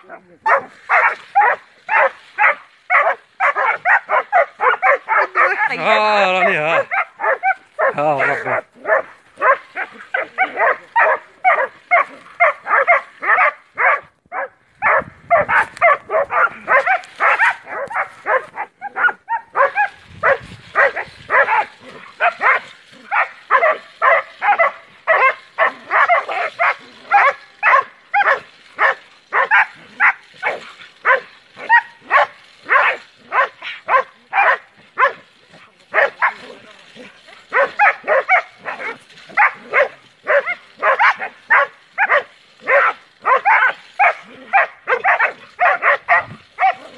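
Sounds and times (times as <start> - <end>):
dogs barking rapidly: 0.0 - 35.3, 35.9 - 46.9.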